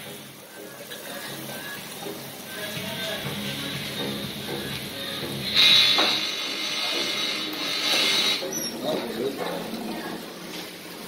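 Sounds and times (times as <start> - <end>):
oil frying hiss: 0.0 - 11.0
music with stepping melody: 0.6 - 6.2.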